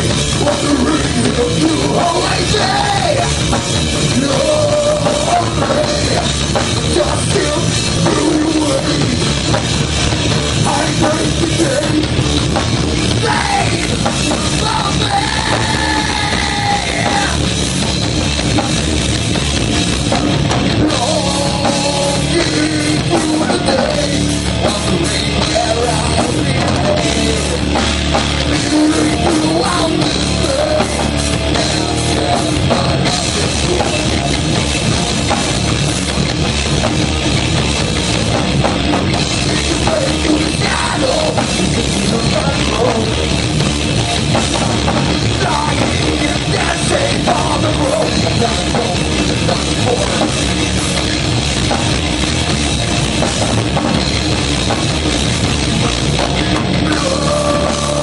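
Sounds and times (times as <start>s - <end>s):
bass guitar: 0.0s - 58.0s
distorted electric guitar: 0.0s - 58.0s
drum kit: 0.0s - 58.0s
person singing: 0.3s - 3.4s, 4.0s - 9.2s, 13.1s - 17.5s, 20.8s - 27.8s, 28.4s - 34.4s, 39.4s - 43.4s, 45.2s - 50.5s, 55.8s - 58.0s.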